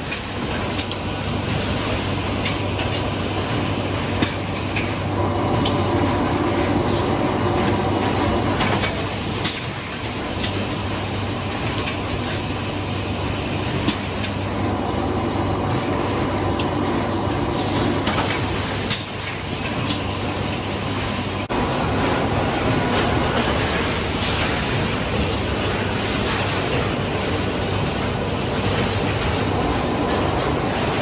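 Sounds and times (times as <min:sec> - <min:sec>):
machine droning: 0:05.0 - 0:08.7
sharp mechanical clicks and knocks: 0:08.6 - 0:10.6, 0:18.0 - 0:20.1.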